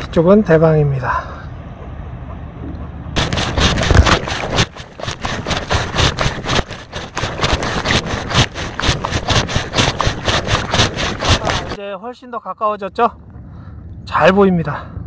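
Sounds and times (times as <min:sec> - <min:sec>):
camera handling noise: 0:03.2 - 0:11.8
kayak paddle splashing: 0:03.2 - 0:11.8.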